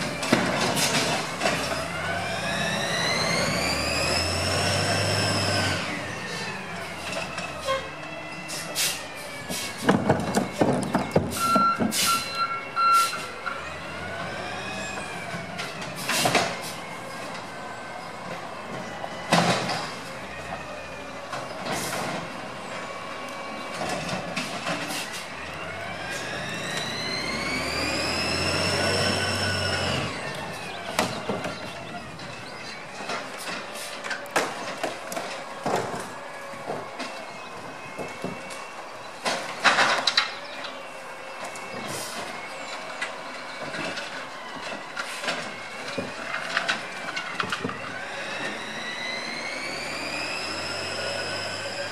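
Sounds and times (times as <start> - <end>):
truck engine revving: 0.2 - 7.2, 21.8 - 33.0, 45.5 - 51.9
cart banging and knocking: 9.8 - 12.0.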